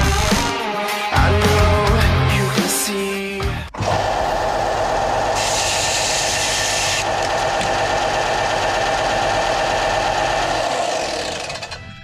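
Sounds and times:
belt sander running: 3.8 - 11.8.

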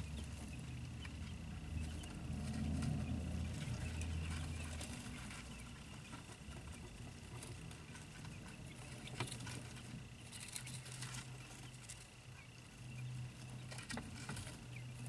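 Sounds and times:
chicks tapping and rustling: 0.0 - 15.0
low steady hum: 0.0 - 15.0.

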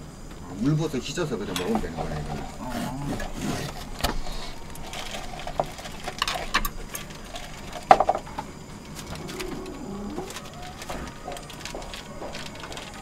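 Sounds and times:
plastic packaging crinkling: 3.2 - 13.0.

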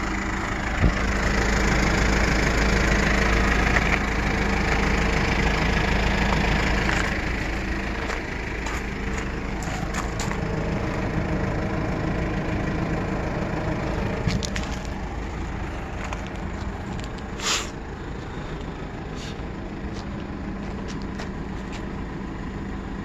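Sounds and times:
diesel engine idling: 0.0 - 23.0
short hiss: 17.4 - 17.8.

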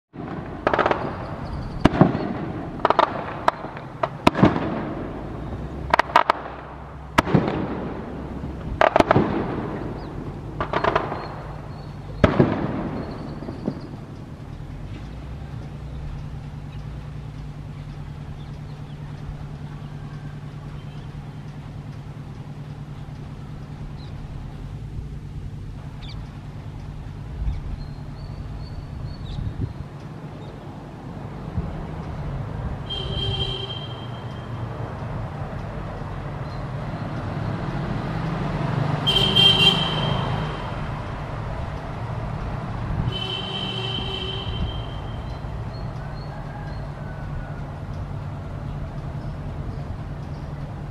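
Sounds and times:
low train rumble: 0.1 - 50.9
low mechanical hum: 6.6 - 38.4
electric locomotive horn: 32.8 - 34.6, 39.0 - 40.8, 43.1 - 45.3.

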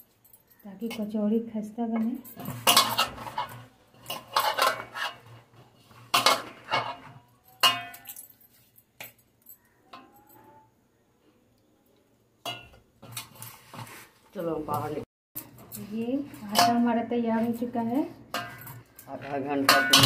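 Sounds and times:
bangles clinking: 0.0 - 4.9, 6.2 - 10.7, 14.3 - 20.0.

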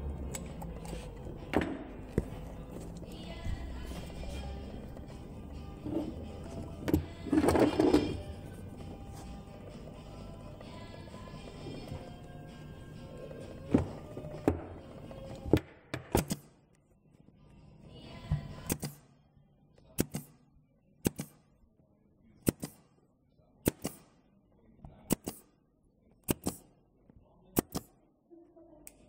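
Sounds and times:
background music: 0.0 - 16.7, 17.4 - 19.3
pin nailer firing: 16.0 - 16.6, 20.0 - 20.4, 21.0 - 21.4, 22.4 - 22.9, 23.6 - 24.2, 25.1 - 25.5, 26.2 - 26.7, 27.6 - 27.9.

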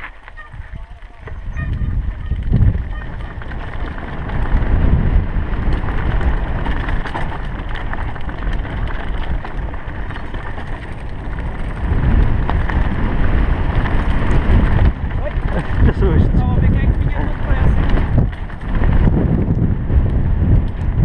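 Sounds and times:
bike clicks and rattles: 0.0 - 21.0
wind rumble on microphone: 0.0 - 21.0
tyres crunching over stones: 2.5 - 19.2.

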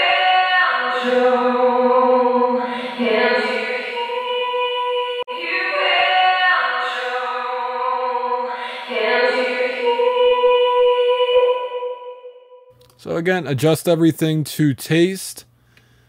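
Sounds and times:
woman singing with reverb: 0.0 - 12.7.

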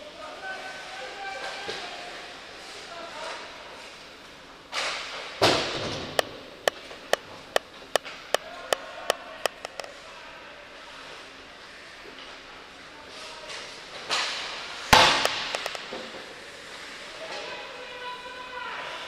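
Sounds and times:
hard hit echoing through rink: 14.9 - 15.9.

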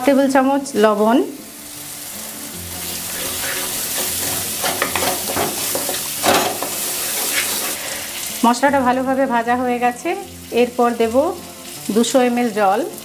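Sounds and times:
paste sizzling in hot oil: 0.0 - 13.0
wooden spatula scraping a pan: 2.8 - 8.2.

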